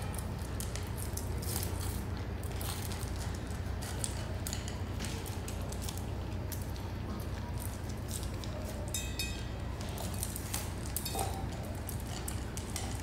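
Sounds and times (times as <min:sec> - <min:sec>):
puppies crunching kibble: 0:00.0 - 0:13.0
metal bowl ringing: 0:08.9 - 0:09.6.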